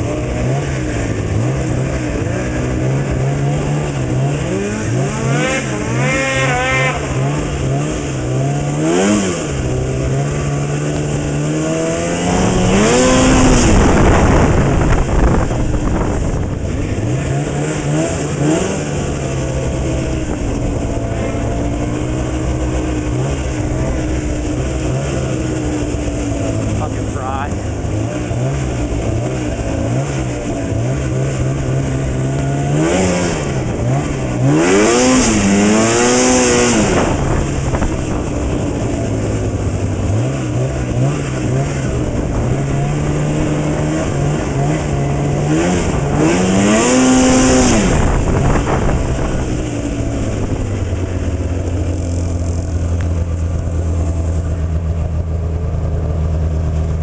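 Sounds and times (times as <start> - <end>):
snowmobile engine revving and idling: 0.0 - 57.0.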